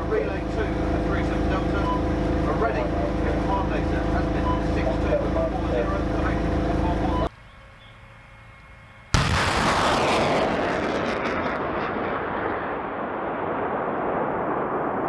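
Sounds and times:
rocket rushing roar: 0:09.1 - 0:15.0
rocket launch blast: 0:09.2 - 0:15.0.

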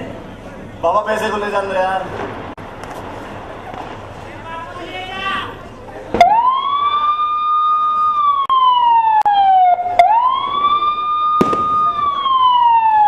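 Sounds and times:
wailing police siren: 0:06.2 - 0:13.0.

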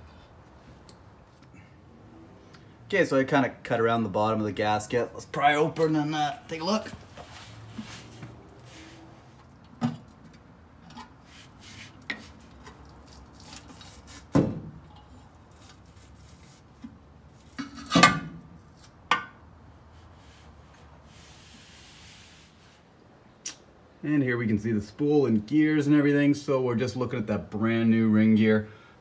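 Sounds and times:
metal clanks and scrapes: 0:14.8 - 0:15.4, 0:17.5 - 0:18.4.

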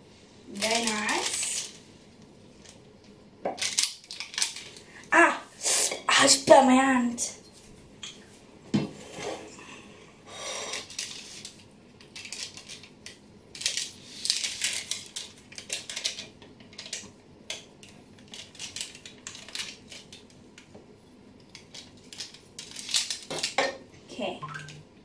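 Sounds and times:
baking paper crinkling: 0:00.4 - 0:01.9, 0:10.9 - 0:17.0, 0:21.5 - 0:23.6.

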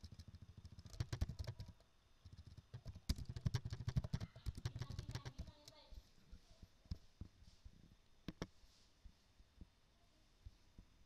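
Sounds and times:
computer mouse clicks: 0:00.0 - 0:05.8, 0:08.3 - 0:08.5.

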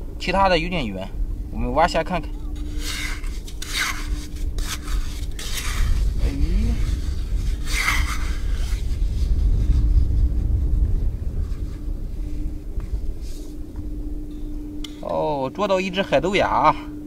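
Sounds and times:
low steady rumble: 0:00.0 - 0:17.0
shovel scraping wet sand: 0:02.6 - 0:09.0.

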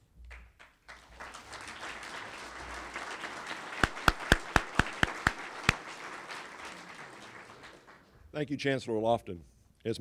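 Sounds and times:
loud close hand claps: 0:00.3 - 0:08.1
audience applauding: 0:00.3 - 0:08.2.

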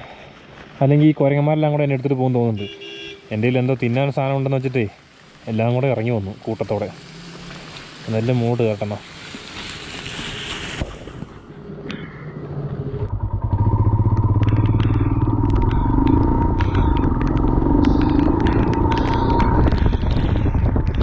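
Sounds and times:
motorcycle engine pulling away: 0:07.0 - 0:08.0, 0:12.6 - 0:21.0.

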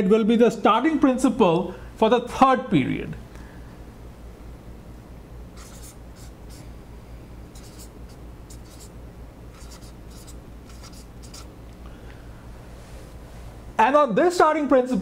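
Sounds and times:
low steady hum: 0:00.0 - 0:15.0
marker scratching on whiteboard: 0:05.6 - 0:06.6, 0:07.6 - 0:08.9, 0:09.5 - 0:11.5.

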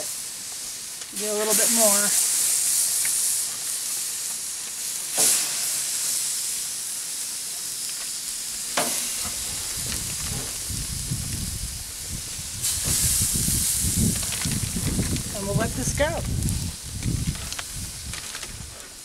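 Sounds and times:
chicken sizzling on a grill: 0:00.0 - 0:19.0
low rumble: 0:09.4 - 0:18.8.

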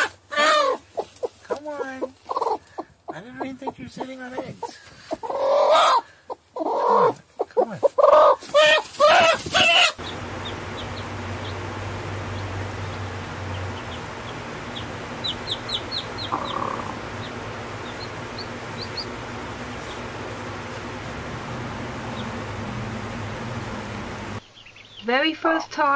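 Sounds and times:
hen clucking: 0:00.0 - 0:24.9
chicks peeping: 0:00.0 - 0:25.1
low hum: 0:10.0 - 0:24.4.

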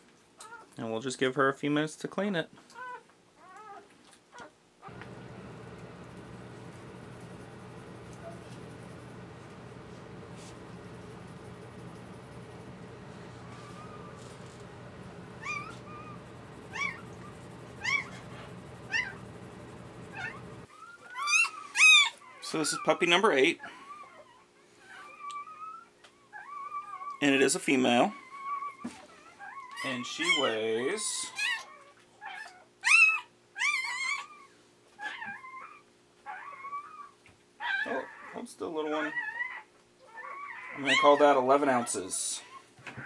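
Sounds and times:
puppies squeaking: 0:15.4 - 0:19.4, 0:20.0 - 0:22.2, 0:39.0 - 0:41.9
puppy squealing: 0:15.4 - 0:19.4, 0:20.0 - 0:22.9, 0:28.1 - 0:30.6, 0:31.2 - 0:42.6.

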